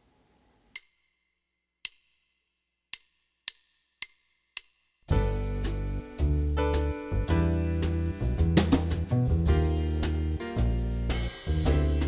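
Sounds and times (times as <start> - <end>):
percussion count-in clicks: 0.7 - 5.1
band playing a song: 6.7 - 12.0.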